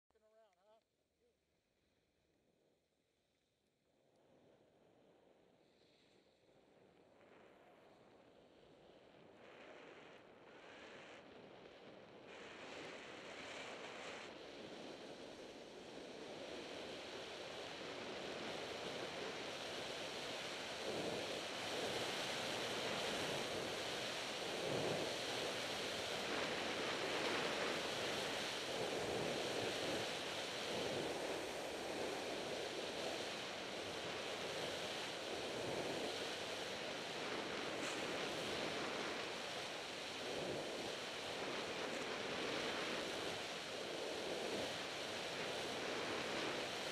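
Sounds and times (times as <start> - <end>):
wind rushing over microphone: 9.1 - 46.9
skis scraping snow: 20.9 - 46.9.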